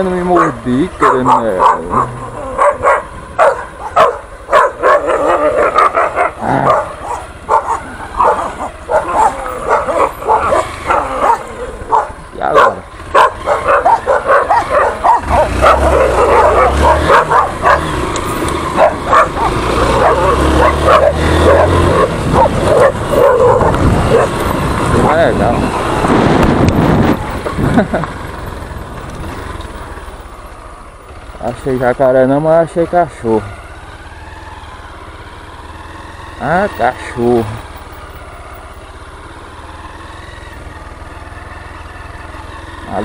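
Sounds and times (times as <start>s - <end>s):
motorcycle engine running: 0.0s - 43.0s
dogs barking and yipping: 0.2s - 26.0s.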